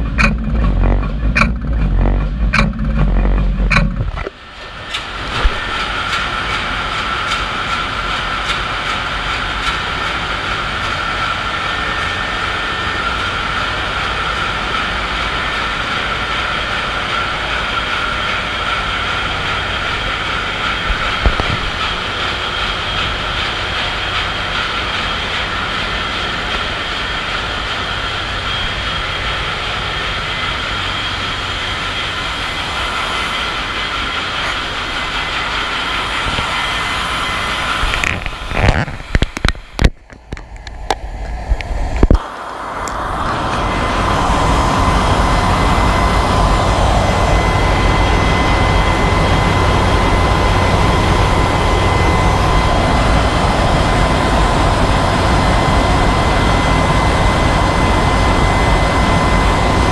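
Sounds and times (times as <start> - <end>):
short mechanical knock: 0.0 - 5.7
high whine: 0.0 - 59.9
ship engine room noise: 0.0 - 59.9.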